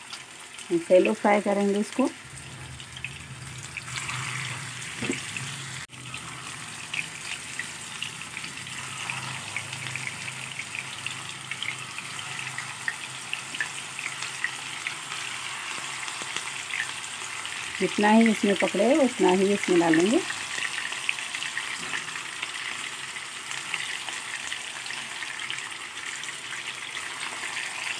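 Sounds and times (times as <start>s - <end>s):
meat sizzling in hot oil: 0.0s - 27.9s.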